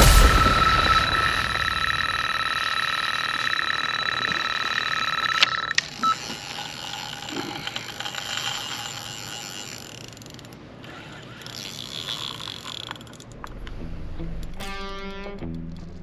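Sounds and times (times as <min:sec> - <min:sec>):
bite alarm beeping: 0:00.0 - 0:08.8.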